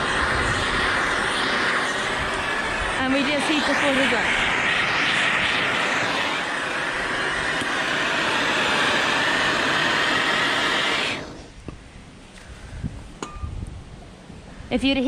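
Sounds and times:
blowtorch hissing: 0.0 - 11.7.

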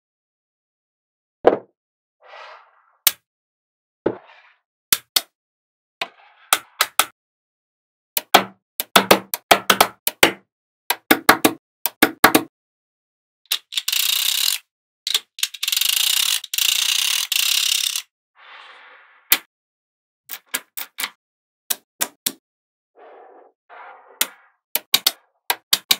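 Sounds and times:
magnetic balls clicking together: 13.5 - 18.1, 24.8 - 25.9.

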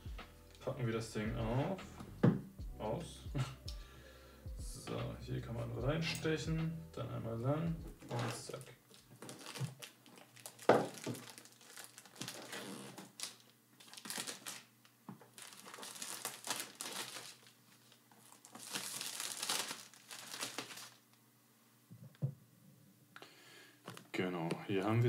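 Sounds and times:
paper and cardboard rustling: 8.0 - 14.6.

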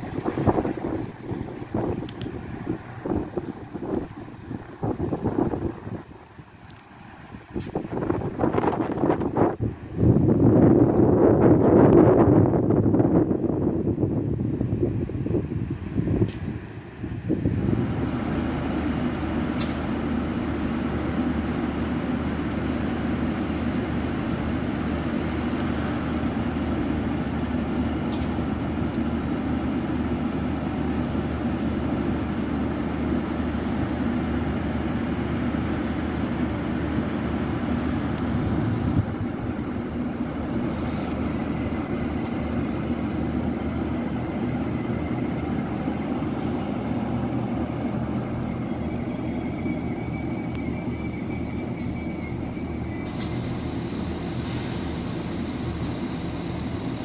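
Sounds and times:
diesel train engine drone: 0.0 - 57.0
sharp click: 19.6 - 19.8, 28.1 - 28.4
faint high squeals: 42.7 - 54.8.

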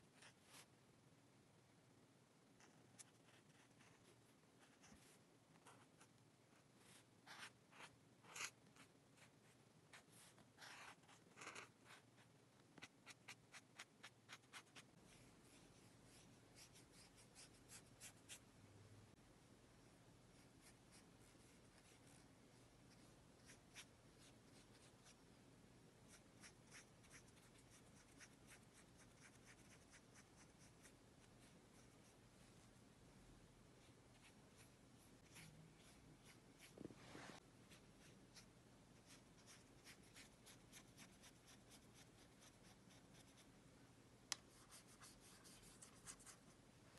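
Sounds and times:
paintbrush strokes on paper: 0.0 - 0.7, 2.6 - 18.4, 33.8 - 43.5
marker scratching on paper: 6.9 - 9.3, 9.9 - 14.9, 34.2 - 36.8.

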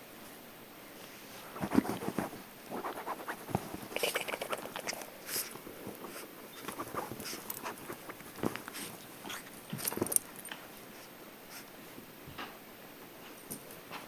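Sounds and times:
blanket scuffling and rustling: 5.2 - 10.4.

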